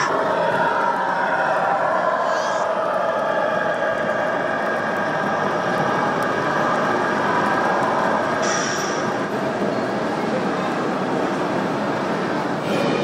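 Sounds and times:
model bus engine sound: 2.7 - 13.0.

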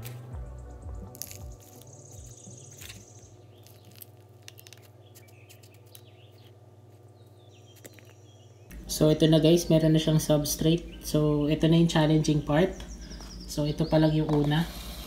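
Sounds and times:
low steady hum: 0.0 - 15.0
substrate rustling into plastic cup: 1.1 - 7.0, 7.7 - 8.2.

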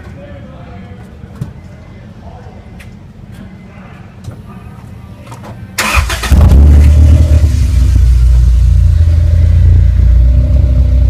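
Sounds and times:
car engine cranking: 5.8 - 9.4
car engine idling: 5.8 - 11.0.

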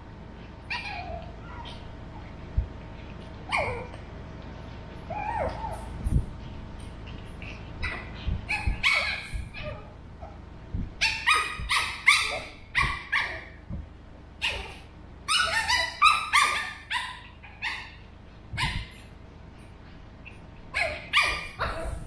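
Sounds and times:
puppy yapping barks: 7.8 - 9.8, 11.0 - 13.6, 14.4 - 18.0, 20.7 - 22.0.

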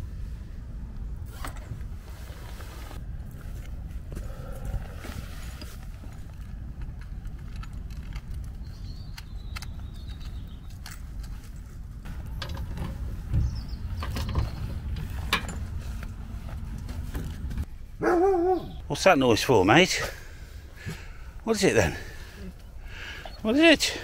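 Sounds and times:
low steady rumble: 0.0 - 18.9.

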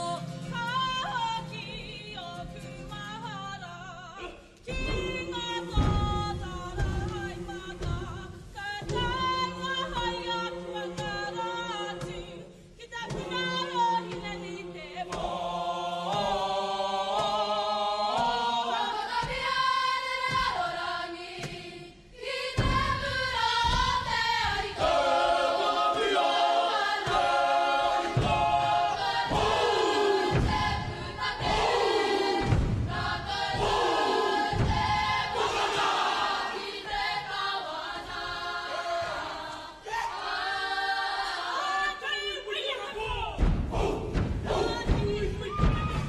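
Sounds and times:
group of people singing: 0.0 - 46.0
low thumping beat: 27.0 - 36.6, 43.1 - 46.0.

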